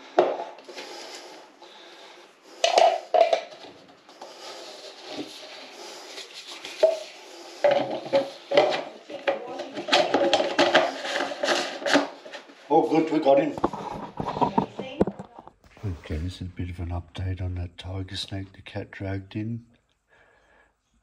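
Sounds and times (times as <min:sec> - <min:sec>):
rubbing and rustling: 0:03.1 - 0:16.3.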